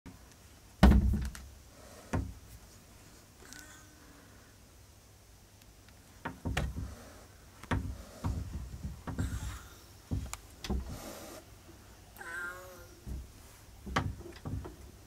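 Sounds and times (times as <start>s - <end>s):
kitten hissing and spitting: 10.8s - 11.5s
kitten wavering cry: 12.2s - 13.0s.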